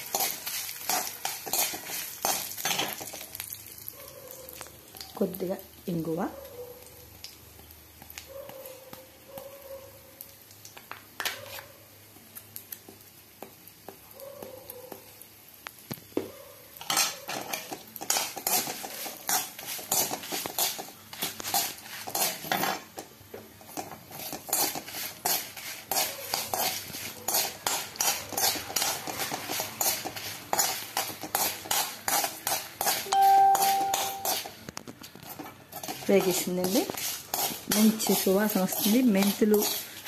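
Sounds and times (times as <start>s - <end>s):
steel spatula scraping a pan: 0.0s - 3.2s, 16.8s - 34.6s, 35.2s - 40.0s
spices frying in oil: 0.0s - 40.0s
brief steady tone: 33.1s - 34.2s.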